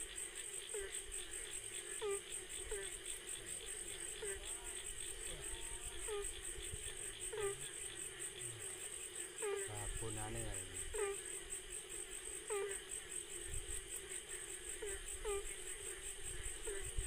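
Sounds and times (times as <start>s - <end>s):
crickets trilling: 0.0s - 17.0s.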